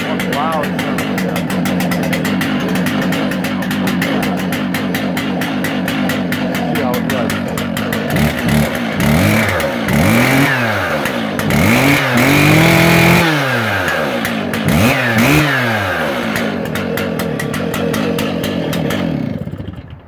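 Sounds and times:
chainsaw engine revving and idling: 0:00.0 - 0:20.0.

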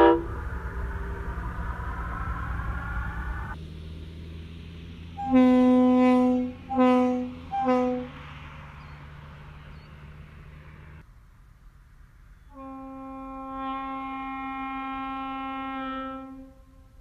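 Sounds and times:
locomotive air horn blasts: 0:00.0 - 0:01.3, 0:05.2 - 0:08.4, 0:12.5 - 0:17.0.

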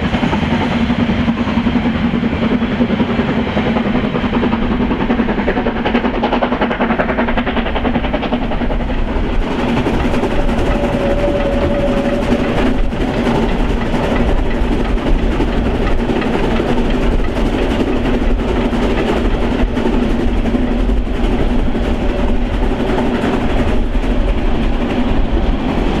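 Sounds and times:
steam train wheels clattering: 0:00.0 - 0:26.0
steady high tone: 0:10.3 - 0:12.9.

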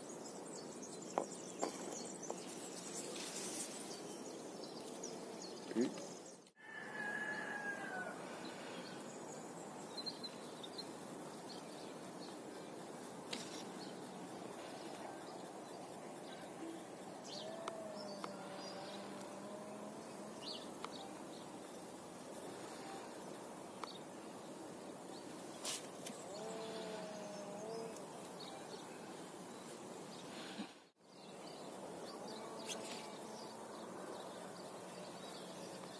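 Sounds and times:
outdoor background noise: 0:00.0 - 0:35.9
steady background hiss: 0:00.0 - 0:35.9
faint distant animal call: 0:05.6 - 0:09.1, 0:16.3 - 0:21.3, 0:26.2 - 0:29.2.

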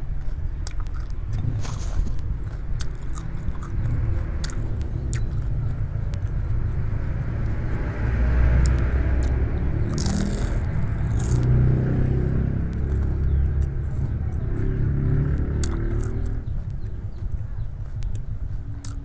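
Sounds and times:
steady low rumble: 0:00.0 - 0:19.0
person chewing food: 0:00.1 - 0:19.0
wet mouth clicks and smacks: 0:00.6 - 0:07.6, 0:08.6 - 0:11.7, 0:15.6 - 0:16.8, 0:17.9 - 0:19.0.

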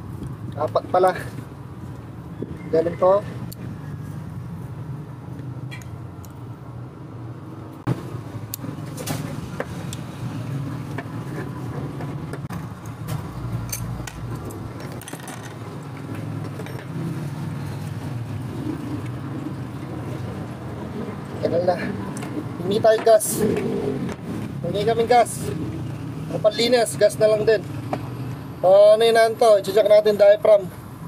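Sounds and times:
metal parts clicking and clinking: 0:13.6 - 0:15.6.

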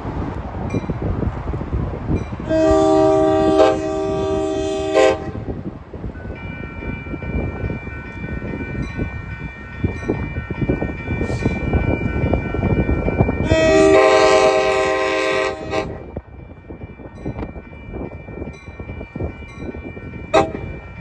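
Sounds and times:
train running rumble: 0:00.0 - 0:21.0
train air horn blast: 0:02.4 - 0:05.5, 0:13.4 - 0:16.0, 0:20.3 - 0:20.7.

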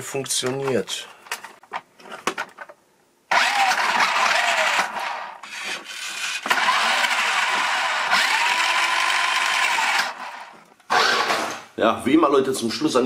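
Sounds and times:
toy car electric motor whining: 0:03.3 - 0:11.4.

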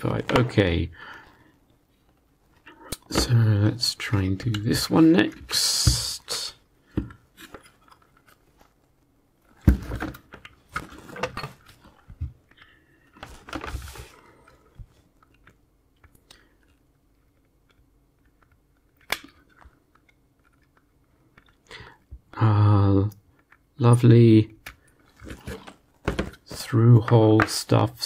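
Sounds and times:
circuit board rustling and crackling: 0:01.7 - 0:22.3.

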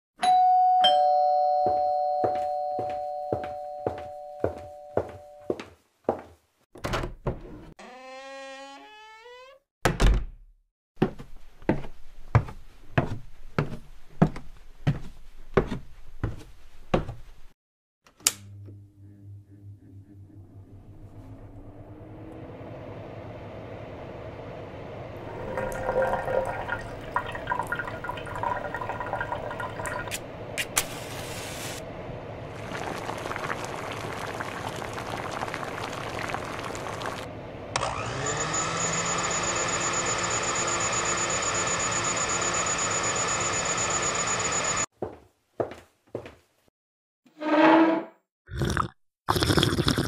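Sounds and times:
water bubbling in kettle: 0:25.2 - 0:30.1, 0:32.5 - 0:37.3, 0:48.6 - 0:50.0.

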